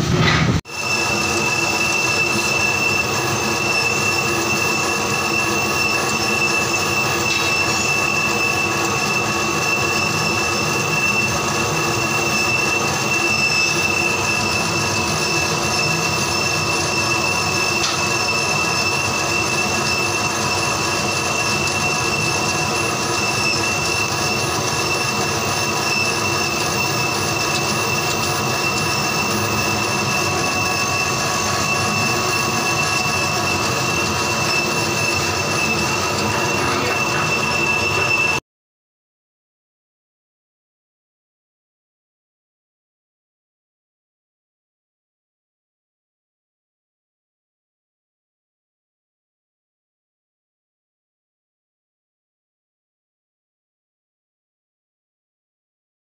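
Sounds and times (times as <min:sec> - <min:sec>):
high unbroken whine: 0:00.0 - 0:38.4
laser engraver running: 0:00.7 - 0:38.4.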